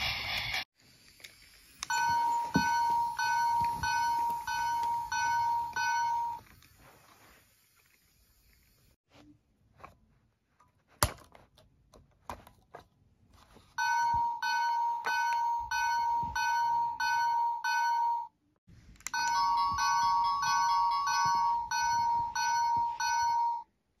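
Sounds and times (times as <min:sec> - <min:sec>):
toy electronic bell dinging: 0:01.8 - 0:06.5, 0:13.8 - 0:18.3, 0:19.1 - 0:23.7.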